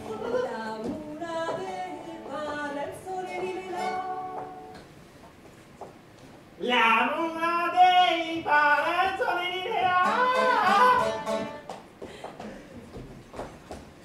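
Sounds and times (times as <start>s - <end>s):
actors singing: 7.0s - 11.5s
instrumental accompaniment: 10.0s - 11.7s.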